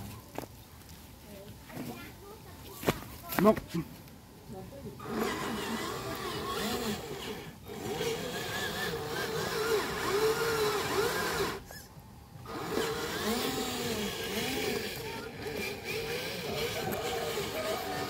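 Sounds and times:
electric motor whining: 0:05.0 - 0:18.0.

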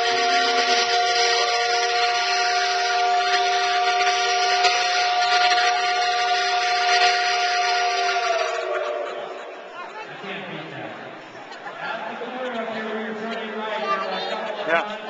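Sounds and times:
steam hissing: 0:00.0 - 0:09.2
steam whistle chord: 0:00.0 - 0:09.3.

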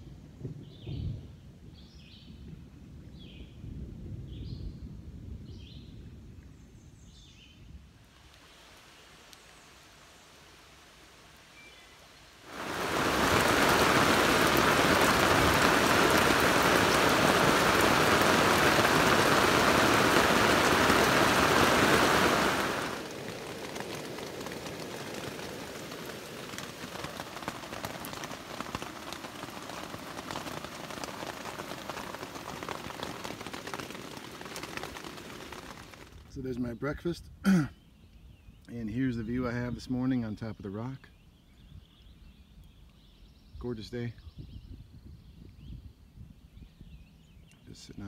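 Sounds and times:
rain on a tent: 0:07.1 - 0:36.8
drips on fabric: 0:12.5 - 0:36.2.

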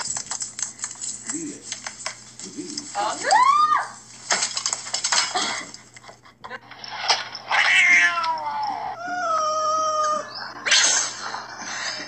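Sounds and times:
cat meowing: 0:07.5 - 0:10.3.

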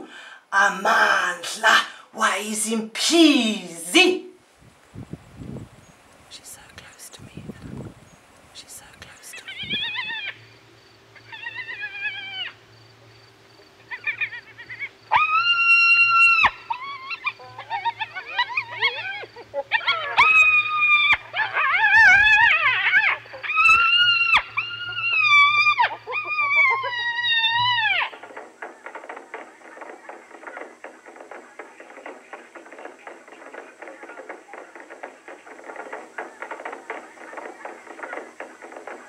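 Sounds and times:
hyena whining calls: 0:09.4 - 0:12.7, 0:13.7 - 0:30.7.

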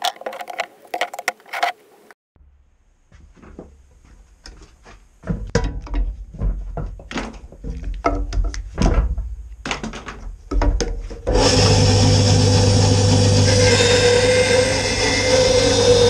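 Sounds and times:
knocks and taps of wood handling: 0:05.2 - 0:11.1
bandsaw motor humming: 0:11.3 - 0:16.0.

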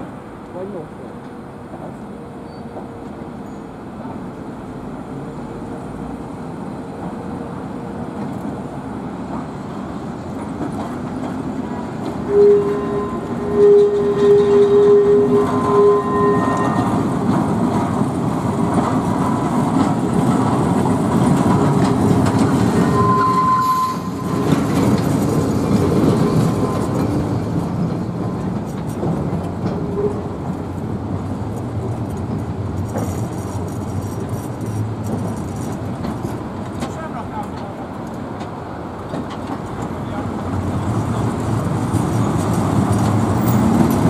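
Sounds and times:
tram wheels rumbling and clattering: 0:00.0 - 0:44.0
wheel squeal: 0:12.2 - 0:17.0, 0:22.6 - 0:27.1.

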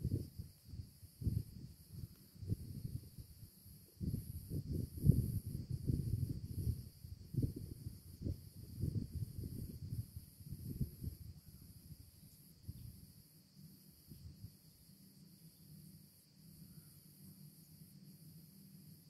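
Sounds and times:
wind rumble on microphone: 0:00.0 - 0:13.2, 0:14.0 - 0:14.6
insects chirring: 0:00.0 - 0:19.0.

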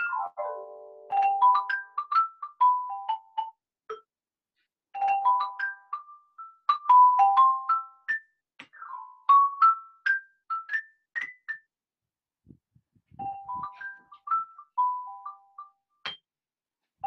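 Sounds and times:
xylophone notes struck with mallets: 0:13.2 - 0:16.3.

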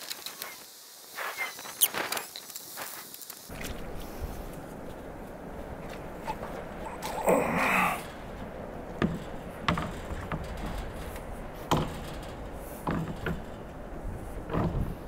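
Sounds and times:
wooden gate knocking: 0:05.1 - 0:15.0.

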